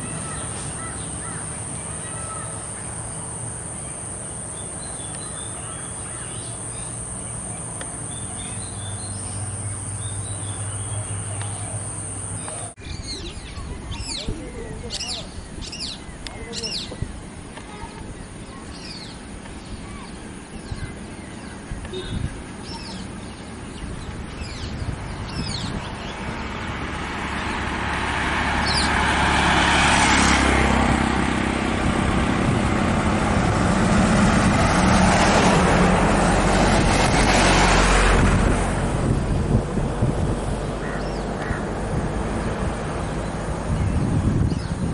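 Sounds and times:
bird chirps: 0.0 - 17.0, 17.8 - 26.3
road traffic passing: 0.0 - 44.9.

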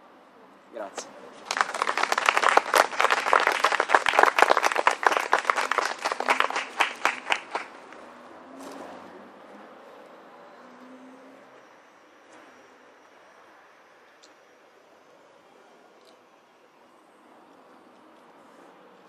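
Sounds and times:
audience applauding: 1.4 - 8.0.

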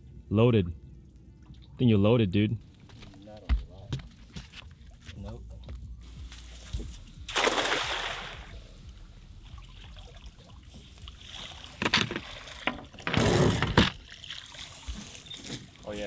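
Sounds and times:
cast net splashing into water: 7.2 - 8.7, 9.5 - 15.0
water pouring off net: 7.3 - 8.5.

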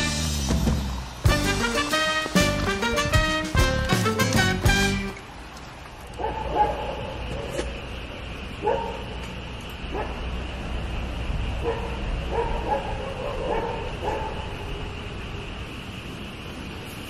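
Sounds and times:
dogs barking and yelping: 6.1 - 7.7, 8.6 - 10.3, 11.6 - 15.0.

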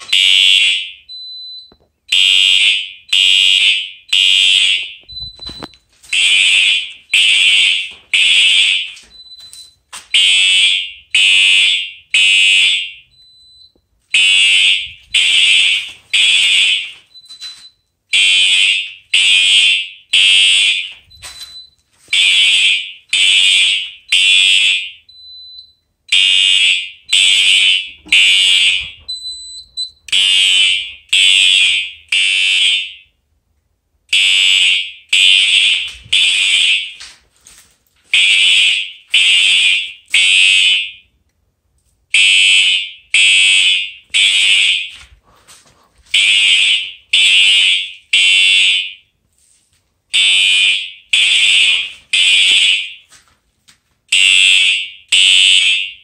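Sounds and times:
fire alarm horn blasts: 0.0 - 1.1, 2.1 - 9.0, 10.1 - 13.1, 14.1 - 25.0, 26.1 - 29.1, 30.1 - 33.1, 34.1 - 37.0, 38.1 - 41.1, 42.1 - 45.0, 46.2 - 49.1, 50.1 - 53.0, 54.1 - 56.0.

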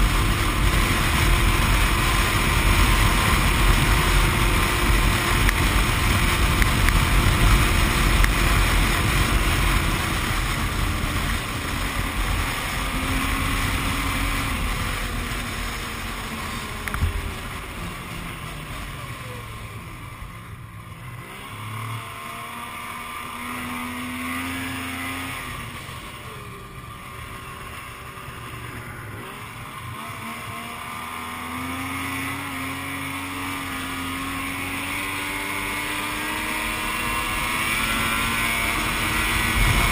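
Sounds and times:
snowmobile engine revving: 0.0 - 39.9
wind rumble on microphone: 37.0 - 39.9.

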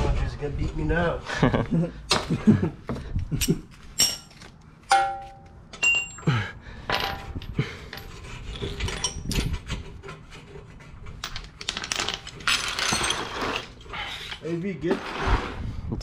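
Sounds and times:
metal tools clinking and clattering: 3.4 - 14.6.

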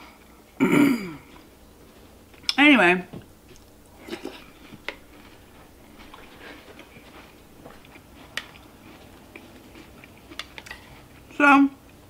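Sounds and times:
chewing cereal: 3.5 - 11.3.

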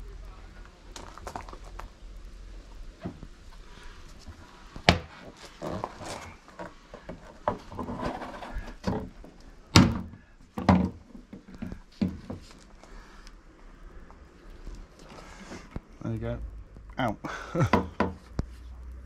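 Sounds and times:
plastic panel scraping and rattling: 5.1 - 12.6.

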